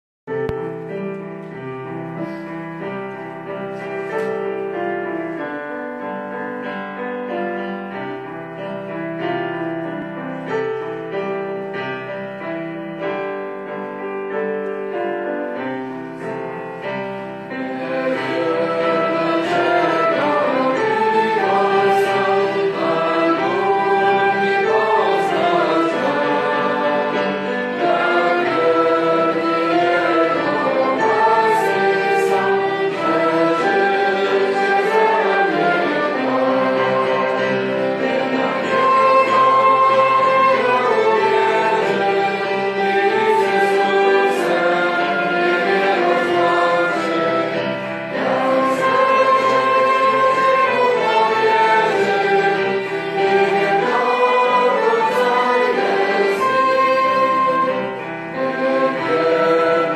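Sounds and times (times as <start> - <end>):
voices singing: 17.4 - 59.9.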